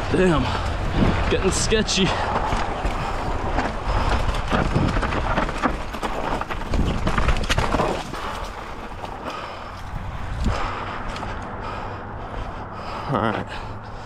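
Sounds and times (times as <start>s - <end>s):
low wind rumble: 0.0s - 14.0s
tyres over dirt and rocks: 0.0s - 14.0s
bike rattling knocks: 2.1s - 9.6s.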